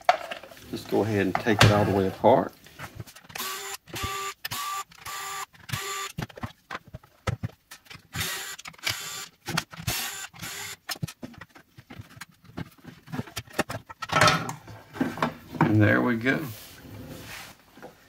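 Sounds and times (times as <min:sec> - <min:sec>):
cordless screwdriver whirring: 0:03.3 - 0:06.2, 0:08.1 - 0:10.9.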